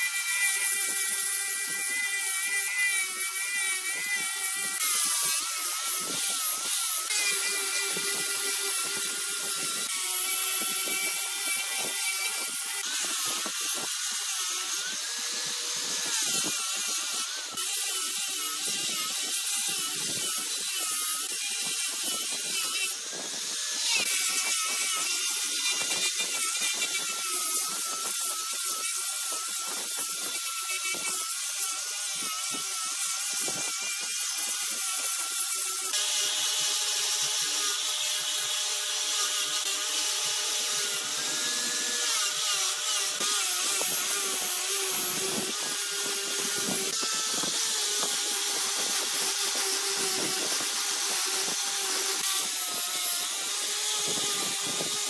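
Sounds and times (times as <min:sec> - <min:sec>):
turning tool cutting wood: 0:00.0 - 0:55.0
wood lathe whining: 0:34.3 - 0:55.0.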